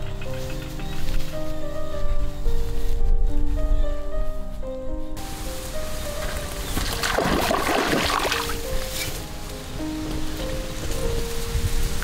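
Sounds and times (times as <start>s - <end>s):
background music melody: 0.0s - 12.0s
faint hiss: 5.2s - 6.7s.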